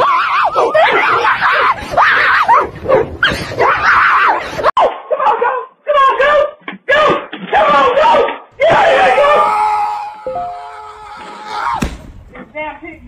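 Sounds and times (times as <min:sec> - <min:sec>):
person screaming: 0:08.6 - 0:11.8.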